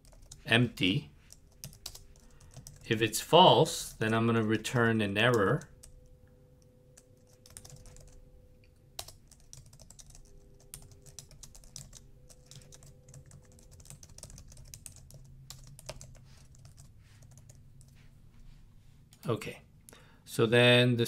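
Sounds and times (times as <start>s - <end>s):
keyboard typing: 0.0s - 0.5s, 1.2s - 2.9s, 7.0s - 8.2s, 9.0s - 18.0s.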